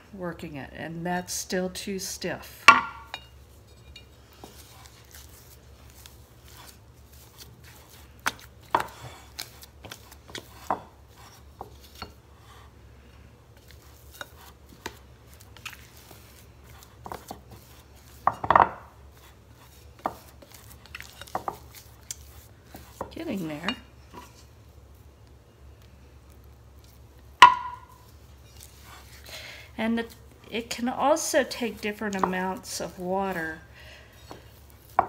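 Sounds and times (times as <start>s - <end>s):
spatula knocking against bowl: 27.4s - 28.0s.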